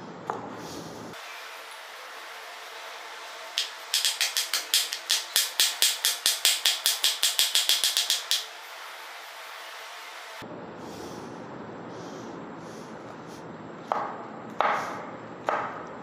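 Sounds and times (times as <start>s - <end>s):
knife chopping on wooden board: 13.9s - 15.8s.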